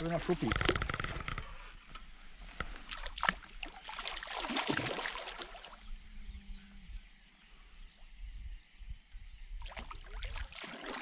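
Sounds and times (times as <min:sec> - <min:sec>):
fish splashing in water: 0:02.9 - 0:05.8, 0:09.6 - 0:11.0.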